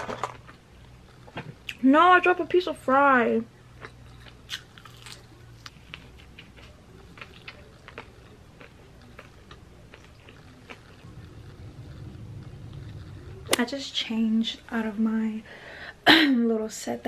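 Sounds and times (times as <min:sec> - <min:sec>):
person chewing food: 0:03.8 - 0:13.6.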